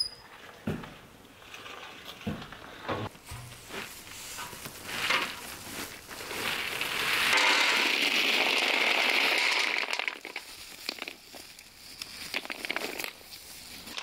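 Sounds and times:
walnuts pouring into plastic basin: 6.2s - 11.5s, 12.1s - 13.2s.

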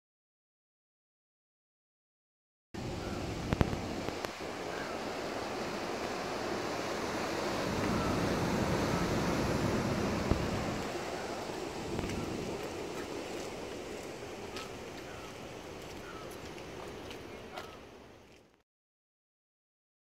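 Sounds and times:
wind blowing over microphone: 2.8s - 17.6s.

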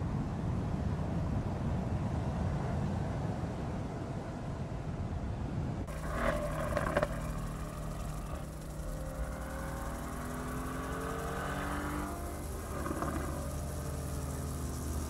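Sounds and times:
car engine accelerating: 5.9s - 15.0s.

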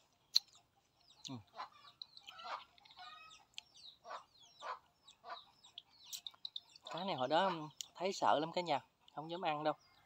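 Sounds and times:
chickens clucking: 0.0s - 10.0s
high bird chirps: 0.3s - 8.1s.

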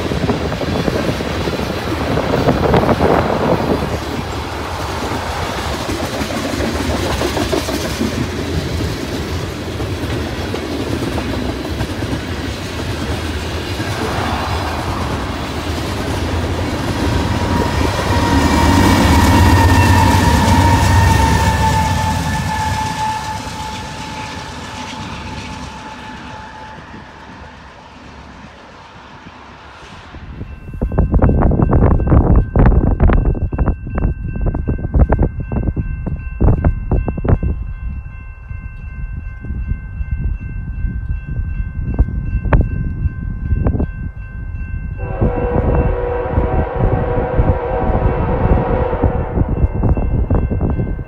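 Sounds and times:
freight train rumbling and clattering: 0.0s - 51.0s
crossing warning bell ringing: 10.2s - 29.2s, 30.2s - 51.0s
steady high whine: 13.1s - 29.6s
locomotive horn chord: 16.3s - 27.6s, 45.0s - 49.6s.

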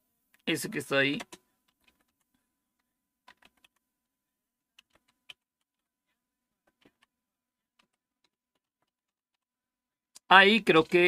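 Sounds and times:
computer keyboard typing: 1.1s - 3.9s, 4.7s - 5.9s, 6.6s - 9.5s.

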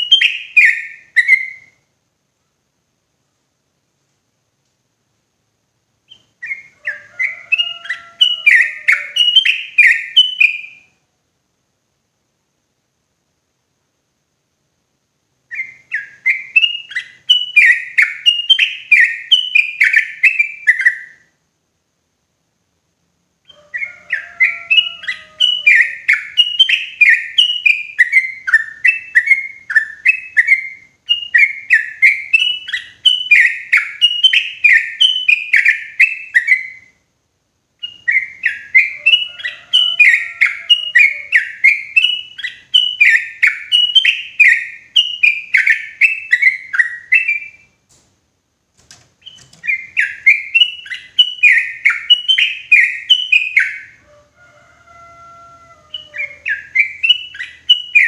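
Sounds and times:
bird chirping: 0.0s - 2.5s, 6.0s - 11.1s, 15.4s - 21.4s, 23.4s - 37.1s, 37.8s - 48.0s, 48.8s - 58.0s.

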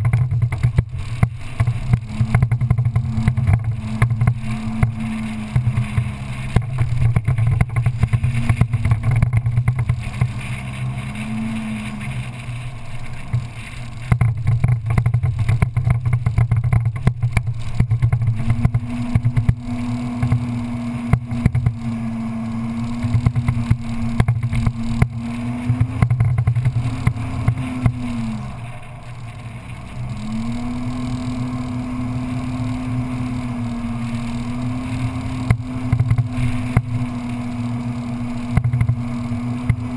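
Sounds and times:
knocks and rattles: 0.0s - 11.3s, 13.3s - 19.6s
off-road vehicle engine: 0.0s - 39.9s.

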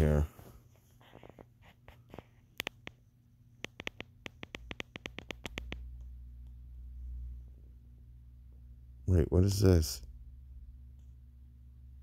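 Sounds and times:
sharp clicks: 2.6s - 3.0s, 3.6s - 6.1s
low hum: 3.5s - 12.0s.

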